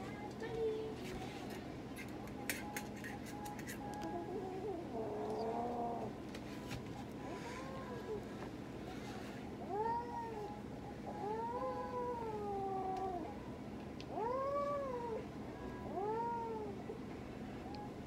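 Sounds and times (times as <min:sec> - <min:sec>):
cat yowling: 0:09.7 - 0:10.5, 0:11.2 - 0:13.3, 0:14.1 - 0:15.2, 0:15.8 - 0:16.8.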